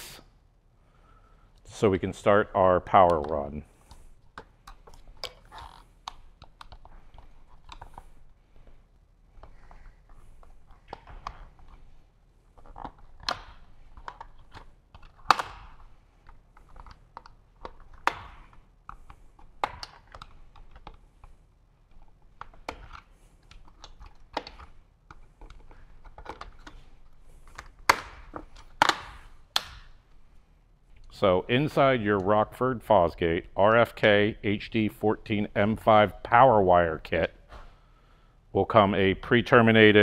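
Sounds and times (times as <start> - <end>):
sharp plastic clicks and snaps: 12.7 - 21.3, 27.5 - 30.0.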